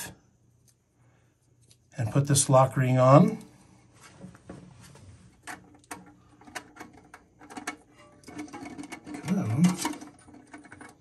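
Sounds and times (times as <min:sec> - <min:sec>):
plastic ring clicking and scraping: 0:05.4 - 0:11.0.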